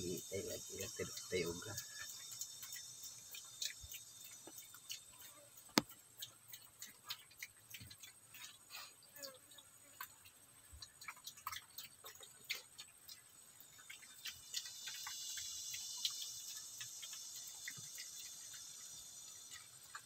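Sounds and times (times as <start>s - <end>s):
high insect drone: 0.0s - 5.8s, 13.7s - 20.0s
piglets crunching feed: 0.0s - 20.0s.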